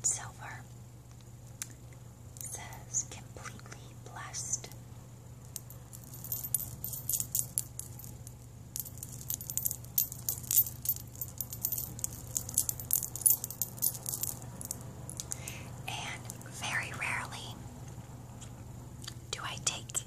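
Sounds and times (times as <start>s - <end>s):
metal bracelets jingling: 5.5s - 16.5s.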